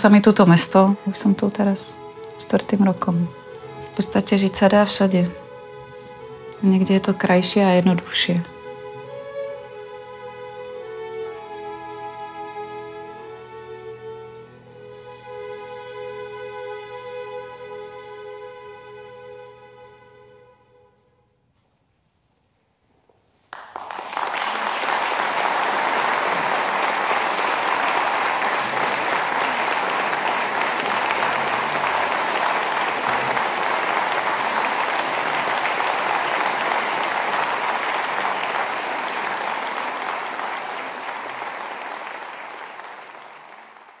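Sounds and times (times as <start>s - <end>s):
audience applauding: 23.5s - 44.0s.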